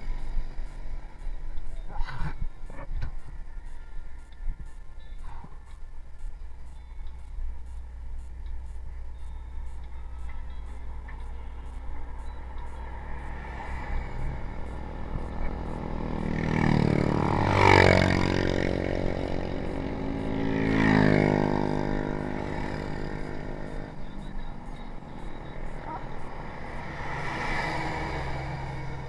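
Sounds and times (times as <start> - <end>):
low rush of wind: 0.0 - 29.0
motor vehicles passing by: 0.0 - 29.0.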